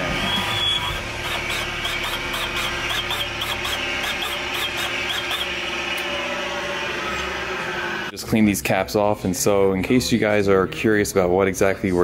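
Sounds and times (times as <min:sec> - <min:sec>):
cutting machine humming: 0:00.0 - 0:08.1.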